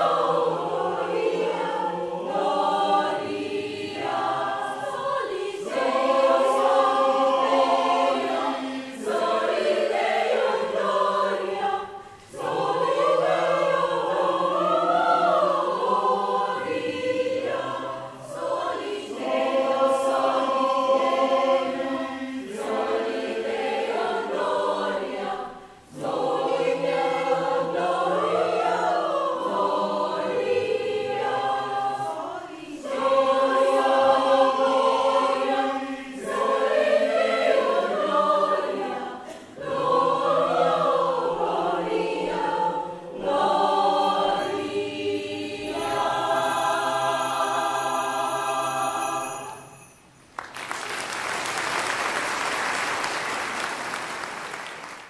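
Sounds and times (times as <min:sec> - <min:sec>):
mixed choir singing: 0:00.0 - 0:49.9
audience applause: 0:50.4 - 0:55.0.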